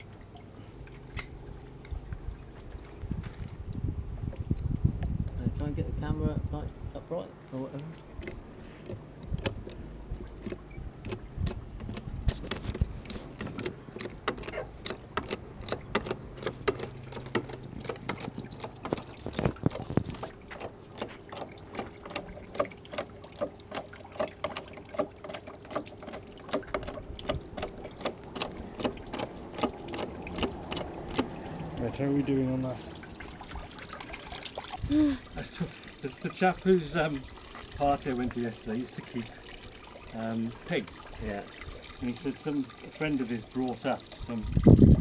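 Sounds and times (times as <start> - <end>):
hydraulic jack pumping clicks: 10.4 - 12.8.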